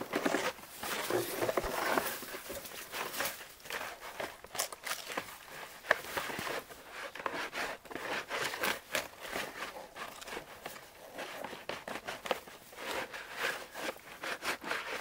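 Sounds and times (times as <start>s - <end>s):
footsteps crunching in dry brush: 0.0s - 7.1s
rustles and crackles of handling: 0.0s - 15.0s.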